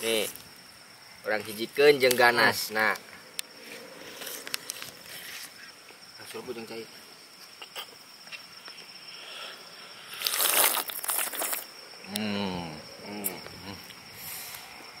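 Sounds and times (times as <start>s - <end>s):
crickets chirping: 0.0s - 15.0s
man humming: 12.1s - 14.0s.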